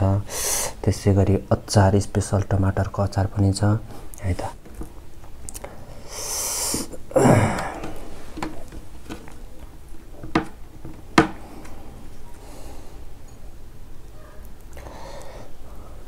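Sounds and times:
man sniffing and breathing: 0:00.3 - 0:00.8, 0:05.6 - 0:08.3, 0:14.8 - 0:16.0.

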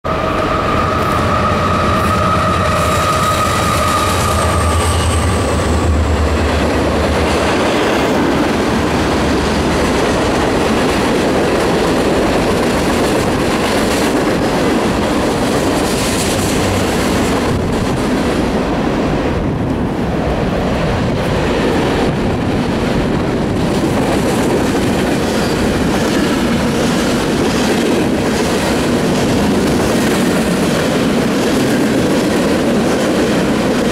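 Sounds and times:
high whine: 0:00.0 - 0:09.8
train wheels clattering: 0:00.3 - 0:18.5.

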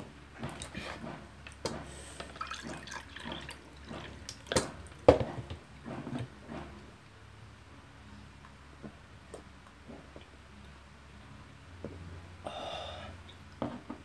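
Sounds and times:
water pouring into a cup: 0:02.3 - 0:04.5.

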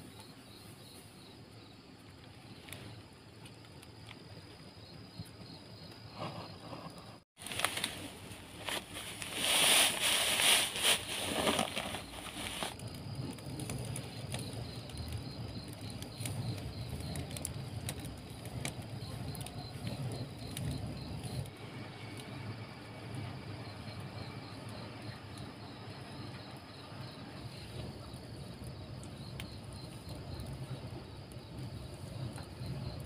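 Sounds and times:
rice husk rustling: 0:07.4 - 0:12.8.

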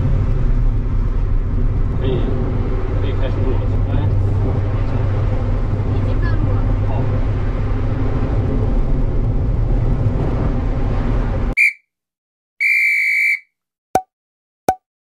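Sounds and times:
car engine and road noise: 0:00.0 - 0:11.6.

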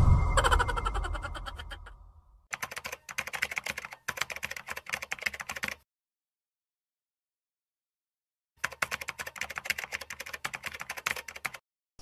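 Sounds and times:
computer keyboard typing clicks: 0:02.5 - 0:05.8, 0:08.6 - 0:11.6.

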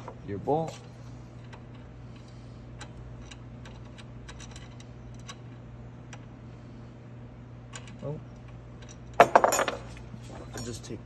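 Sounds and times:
steady low hum: 0:00.0 - 0:11.0
metallic clicks of washers and bolt: 0:01.4 - 0:06.3, 0:07.7 - 0:09.8.

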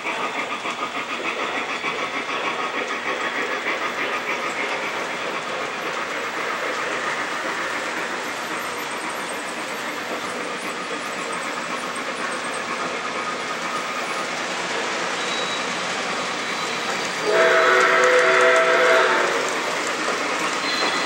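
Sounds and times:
model train wheels clattering: 0:00.0 - 0:21.0
model steam locomotive whistle: 0:16.4 - 0:19.6, 0:20.6 - 0:21.0.

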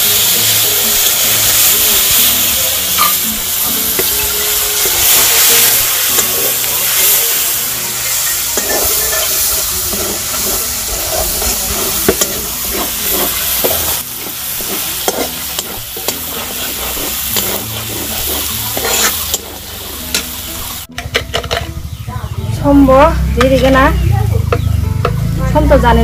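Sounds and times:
food sizzling in a pan: 0:00.0 - 0:21.6
spatula scraping and knocking pan: 0:08.2 - 0:21.7, 0:23.4 - 0:25.2.

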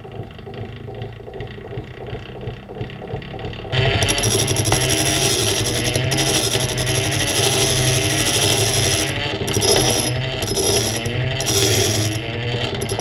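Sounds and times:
hand-cranked grinder grinding metal: 0:03.7 - 0:13.0.

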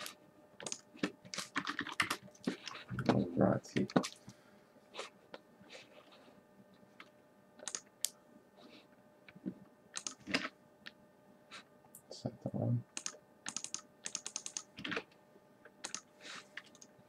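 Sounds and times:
typing on computer keyboard: 0:00.0 - 0:02.8, 0:07.6 - 0:07.9, 0:10.0 - 0:10.5, 0:12.9 - 0:15.1, 0:15.8 - 0:16.9.

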